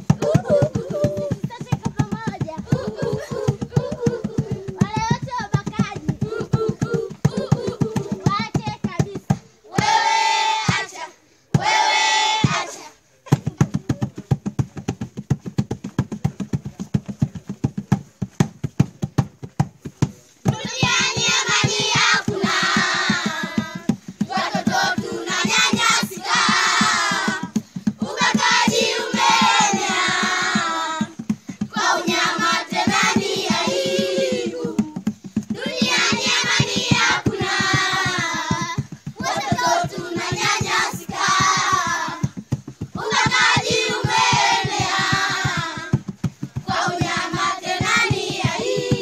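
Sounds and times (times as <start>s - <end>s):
hand drum beating fast: 0.0s - 9.9s, 13.3s - 49.0s
children singing together: 6.2s - 8.2s, 31.7s - 35.0s, 46.8s - 49.0s.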